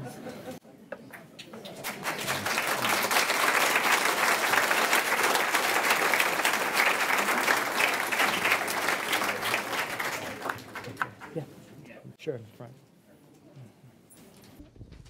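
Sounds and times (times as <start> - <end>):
audience applauding: 1.7 - 11.4.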